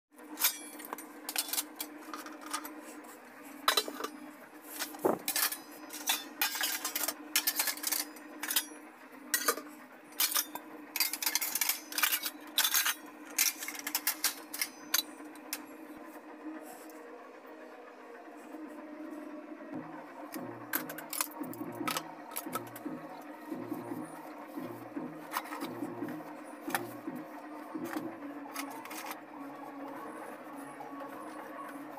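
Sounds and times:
steady low hum: 0:00.4 - 0:31.9
metal dishes clattering: 0:03.6 - 0:04.2, 0:04.8 - 0:15.1.

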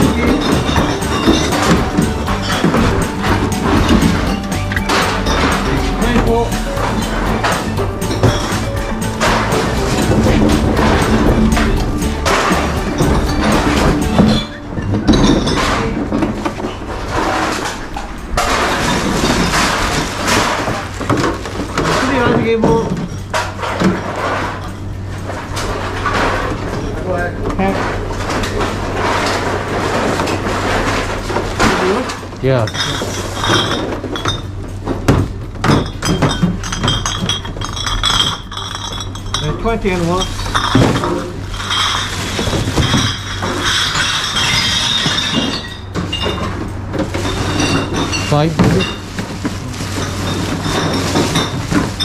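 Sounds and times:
plastic bottles clattering: 0:00.0 - 0:52.0
plastic bag rustling: 0:15.2 - 0:26.6, 0:39.9 - 0:45.9, 0:46.5 - 0:52.0.

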